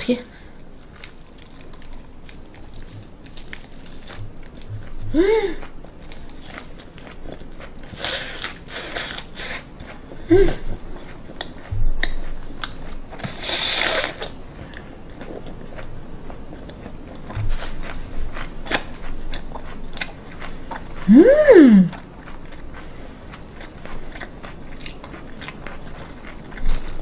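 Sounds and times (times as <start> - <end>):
crunchy chewing: 0.5 - 21.1, 21.8 - 27.0
person humming: 4.7 - 5.6, 21.0 - 22.0.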